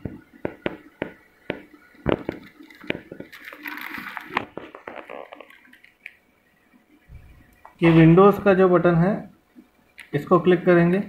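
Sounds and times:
plastic bag crinkling: 2.1s - 6.2s.

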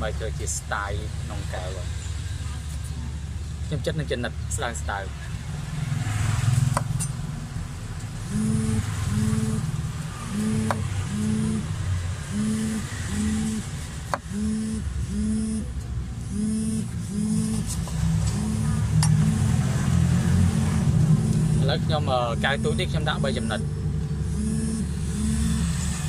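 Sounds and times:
low rumble with pulsing hum: 7.7s - 26.0s.

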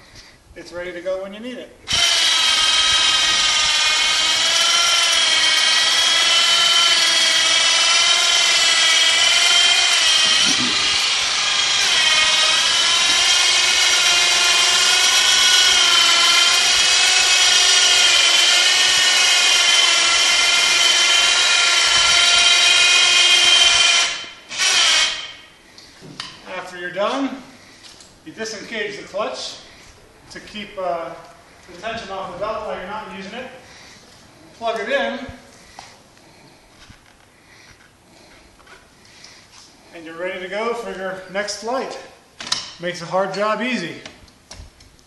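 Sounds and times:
electric motor whining: 1.9s - 25.4s.

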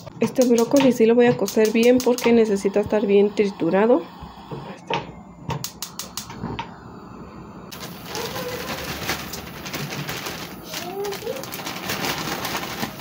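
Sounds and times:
plastic bag crinkling: 7.7s - 13.0s
plastic bag clicks: 8.1s - 13.0s.

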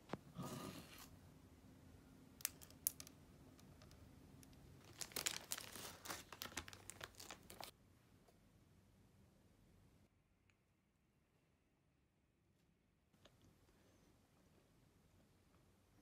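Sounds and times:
plastic wrapper crinkling and tearing: 4.8s - 7.7s.

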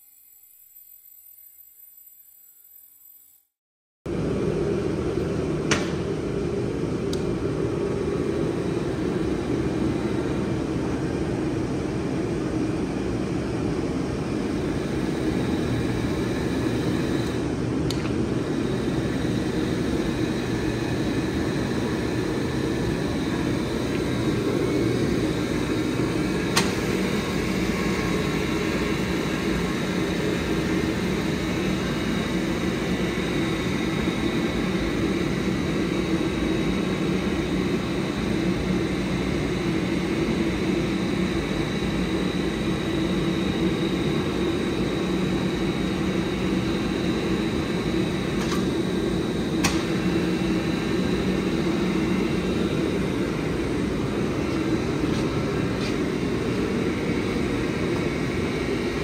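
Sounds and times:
faint high whine: 0.0s - 3.5s.

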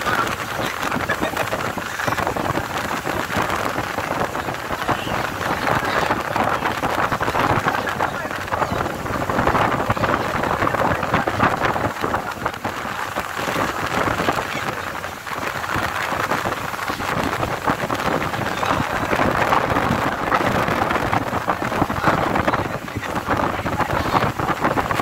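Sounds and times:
boat wake water churning: 0.0s - 25.0s
wind rushing: 0.0s - 25.0s.

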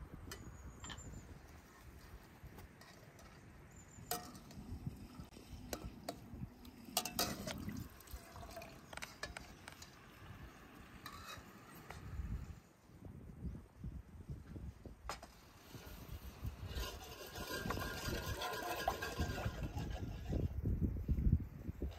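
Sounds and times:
liquid sloshing in a pot: 6.8s - 10.1s.

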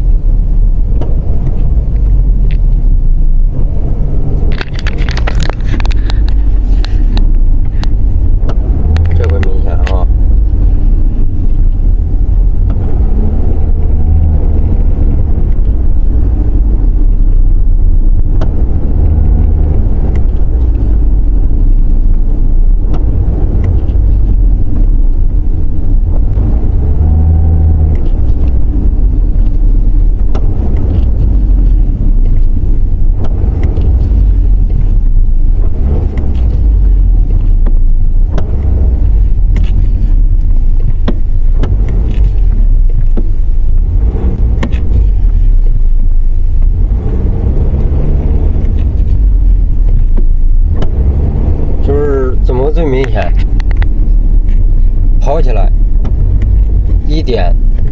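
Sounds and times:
car engine and road noise in cabin: 0.0s - 57.9s.

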